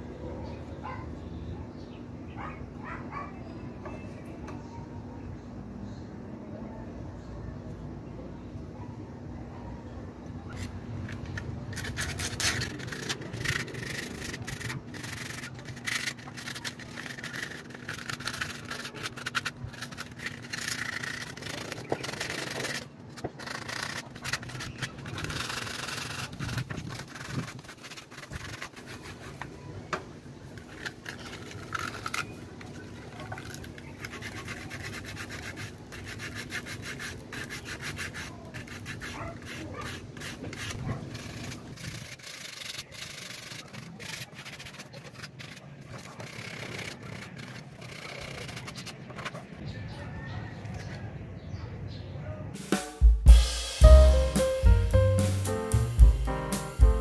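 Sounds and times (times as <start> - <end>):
sandpaper scraping wood: 10.5 - 29.6, 30.5 - 49.4, 53.4 - 57.0.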